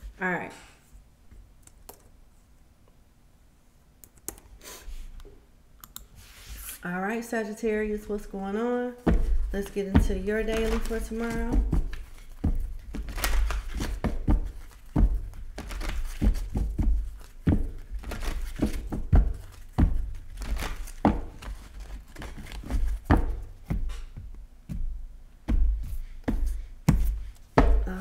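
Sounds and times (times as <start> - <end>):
cards being shuffled: 9.0 - 24.1.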